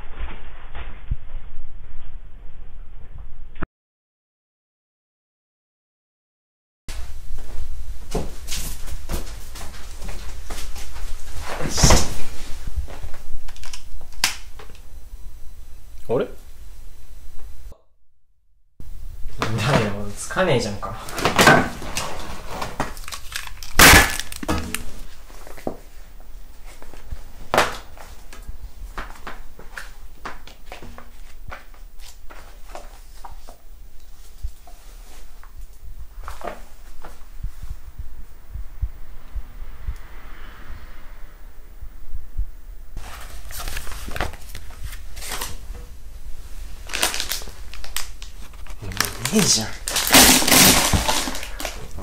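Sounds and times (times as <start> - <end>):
faint low thuds: 35.6 - 40.8
paper rustling: 43.0 - 45.9, 46.6 - 52.0.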